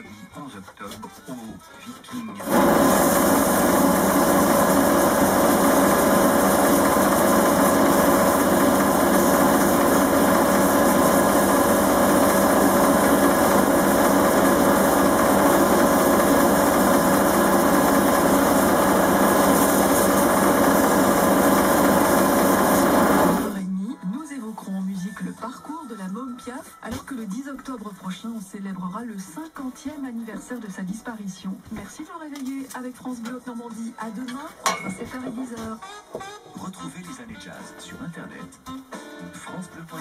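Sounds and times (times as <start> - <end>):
sandpaper hissing on spinning wood: 2.4 - 23.6
wood lathe motor hum: 2.4 - 23.6.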